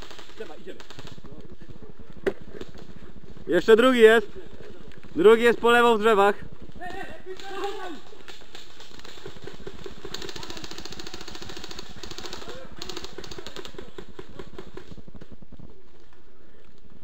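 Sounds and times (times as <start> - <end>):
airsoft rifles full-auto bursts: 0.0 - 1.3, 7.4 - 15.0.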